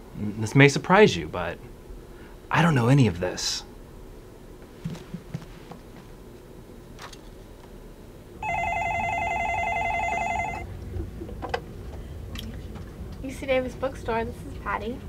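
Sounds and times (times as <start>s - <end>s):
telephone ringing: 8.4s - 10.7s.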